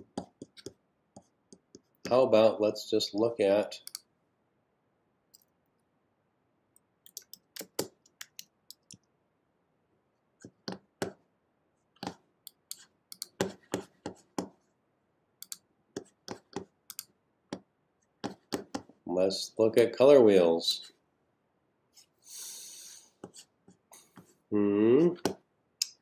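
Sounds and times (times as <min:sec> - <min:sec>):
keyboard and mouse clicks: 0:07.0 - 0:09.1, 0:15.4 - 0:15.7, 0:16.3 - 0:17.1.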